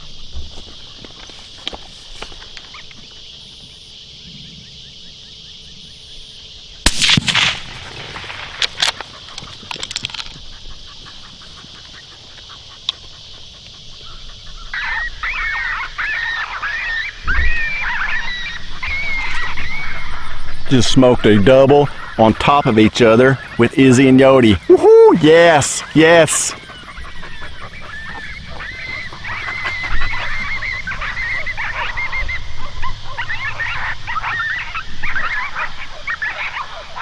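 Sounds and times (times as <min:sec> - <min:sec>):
suppressed rifle shot: 0:06.8 - 0:09.1
dog yelping: 0:09.1 - 0:20.4, 0:24.6 - 0:37.0.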